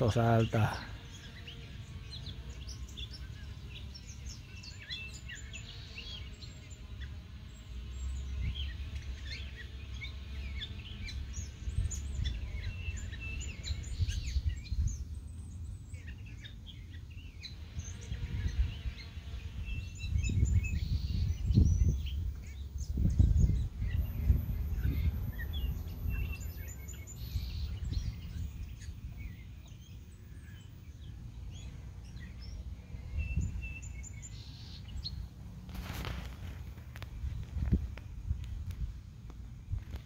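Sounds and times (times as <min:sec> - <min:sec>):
songbird chirping: 0:00.0 - 0:40.0
low microphone rumble: 0:17.6 - 0:40.0.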